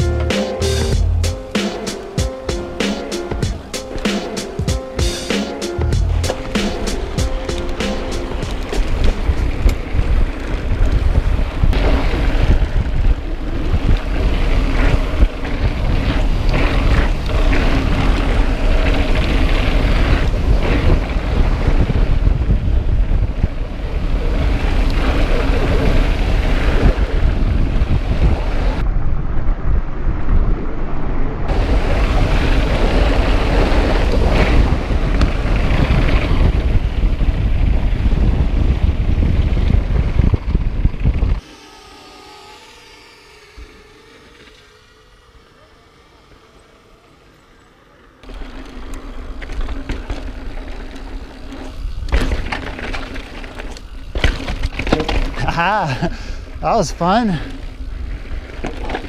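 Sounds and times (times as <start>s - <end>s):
wind buffeting microphone: 5.8s - 46.9s
tyres rolling over rock: 48.2s - 56.2s.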